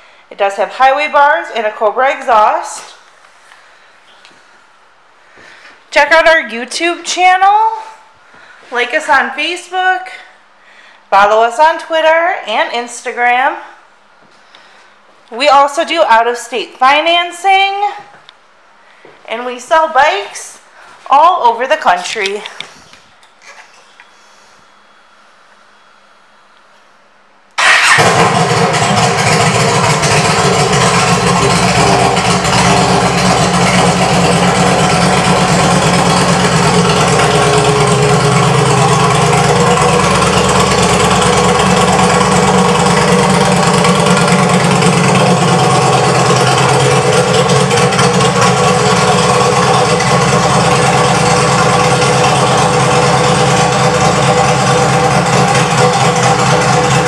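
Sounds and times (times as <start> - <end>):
motorcycle engine idling loudly: 27.6 - 57.0.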